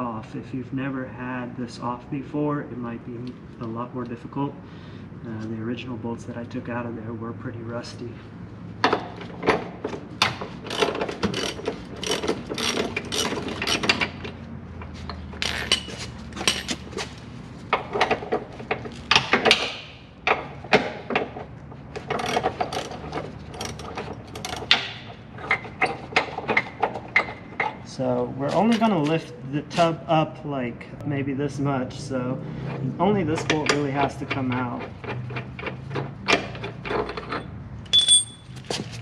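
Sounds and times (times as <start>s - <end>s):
ratchet clicking: 10.7s - 14.1s.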